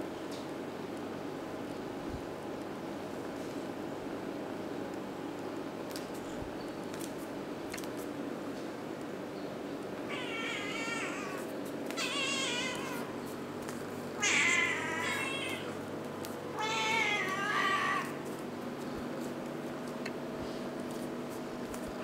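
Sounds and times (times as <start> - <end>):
cat meowing: 10.1 - 13.1, 14.2 - 15.8, 16.5 - 18.2.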